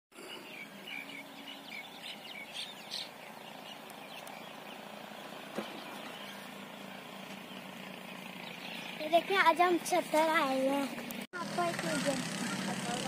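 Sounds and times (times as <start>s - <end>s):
outdoor background noise: 0.1s - 13.0s
small birds chirping: 0.1s - 13.0s.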